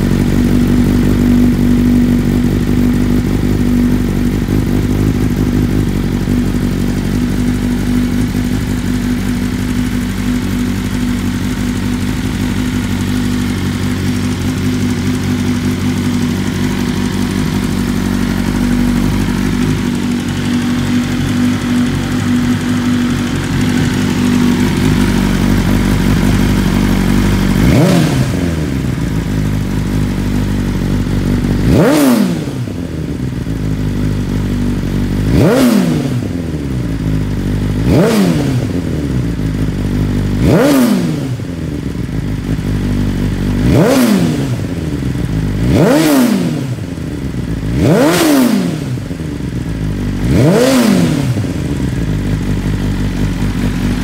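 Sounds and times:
motorcycle engine idling high: 0.0s - 54.0s
motorcycle engine revving: 0.0s - 54.0s.

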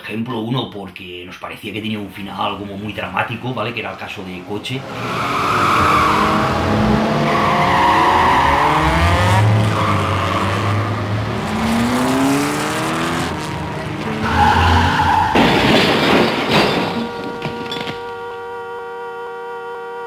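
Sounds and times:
tyres squealing: 2.8s - 11.2s, 13.7s - 18.4s
car engine revving: 3.4s - 15.4s
car crash: 13.2s - 18.4s.

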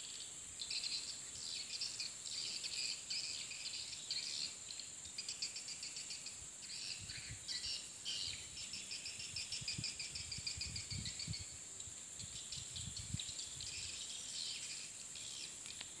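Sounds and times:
steady high hiss: 0.0s - 16.0s
swiftlets chirping and twittering: 12.2s - 15.8s.

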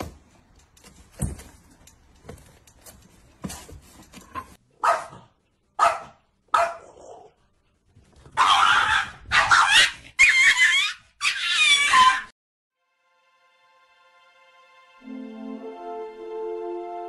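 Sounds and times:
dog barking: 4.8s - 7.4s, 8.4s - 10.8s
dog yelping cries: 8.4s - 12.3s.

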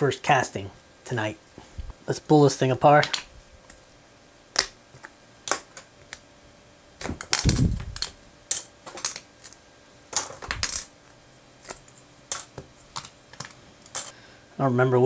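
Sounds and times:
plastic bricks clattering on table: 7.0s - 10.9s, 11.6s - 14.1s.

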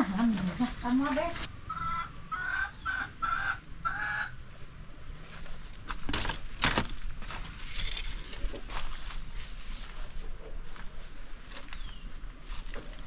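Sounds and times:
turkey calling: 1.7s - 4.4s.

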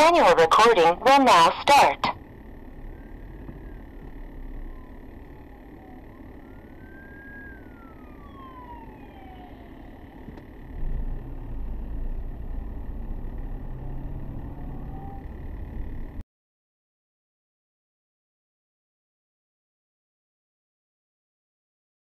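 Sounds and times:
police siren wailing: 0.0s - 16.2s.

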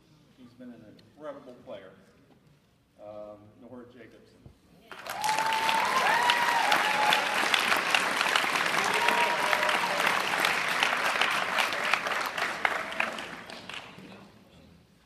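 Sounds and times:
audience applauding: 4.9s - 14.1s.

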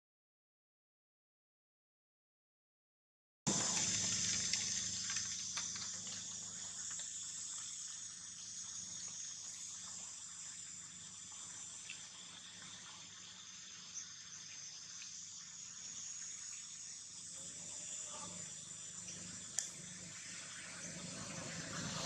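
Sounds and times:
faint ticks: 3.5s - 7.9s, 11.2s - 16.4s
faint low hum: 3.5s - 22.0s
insects buzzing: 3.5s - 22.0s.

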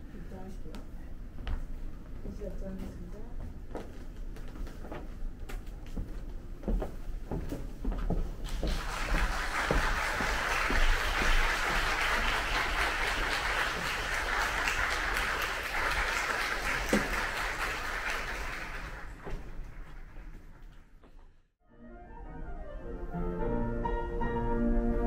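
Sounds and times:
footsteps: 0.8s - 15.1s, 18.8s - 21.4s
audience applauding: 8.4s - 20.8s.

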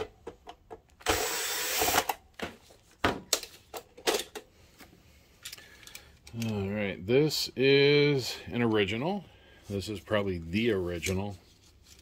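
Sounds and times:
cordless drill whirring: 1.0s - 2.2s.

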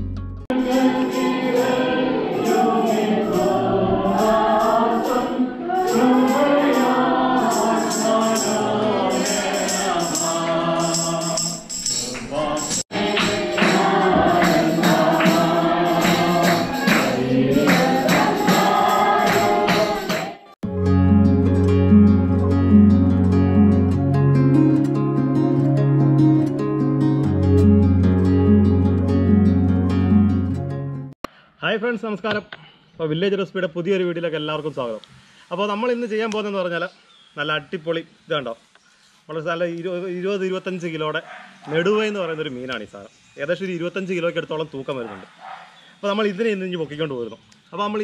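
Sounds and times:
jingling percussion beat: 0.5s - 20.6s
person singing: 0.5s - 20.6s.

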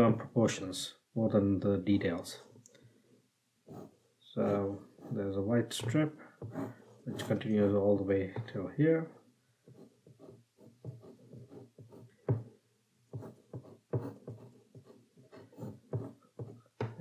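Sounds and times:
pencil scratching on rough paper: 3.6s - 7.8s, 9.6s - 12.5s, 13.1s - 17.0s.

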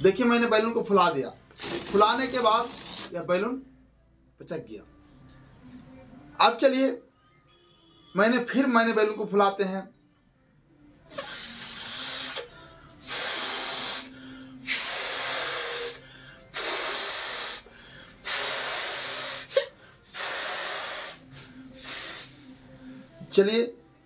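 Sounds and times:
person blowing up a balloon: 1.5s - 3.2s, 11.1s - 22.6s.

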